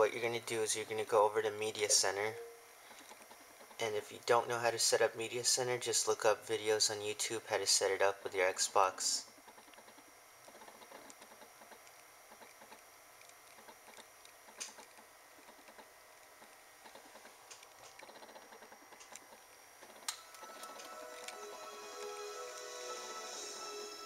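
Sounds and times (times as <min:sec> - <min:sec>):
small clicks and ticks: 0:09.3 - 0:21.4
faint hiss: 0:20.4 - 0:24.0.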